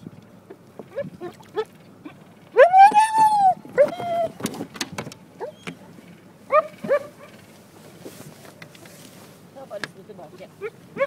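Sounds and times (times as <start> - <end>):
dog whining yelps: 0.9 - 4.4, 5.4 - 5.9, 6.5 - 7.3.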